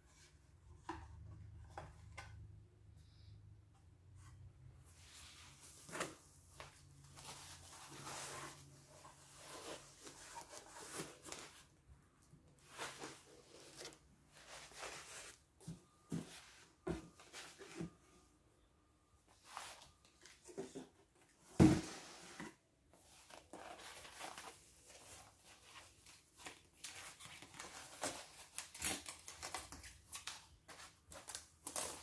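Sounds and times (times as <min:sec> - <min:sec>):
cardboard and foam rustling: 0:04.9 - 0:11.8, 0:12.6 - 0:18.1.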